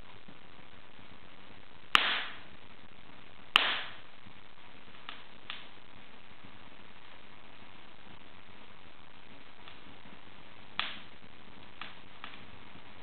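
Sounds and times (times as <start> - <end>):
steady background hiss: 0.0 - 13.0
wood fire crackling: 0.0 - 13.0
loud sharp fire pops: 1.9 - 2.5, 3.5 - 4.1, 10.8 - 12.5.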